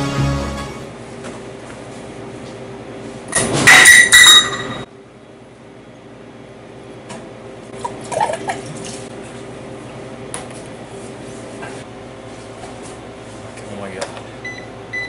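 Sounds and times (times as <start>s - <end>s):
glassware clinking: 3.7s - 4.9s.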